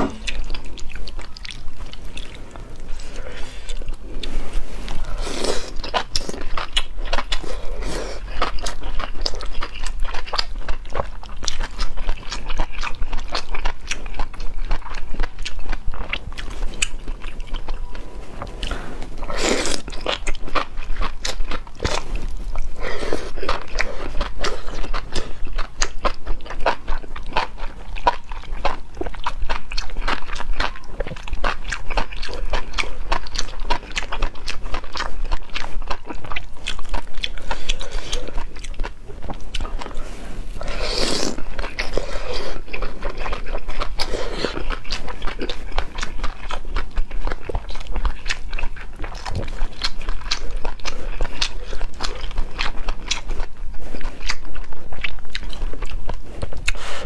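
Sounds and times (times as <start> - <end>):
person chewing: 0.0 - 57.0
slurps: 39.8 - 42.7.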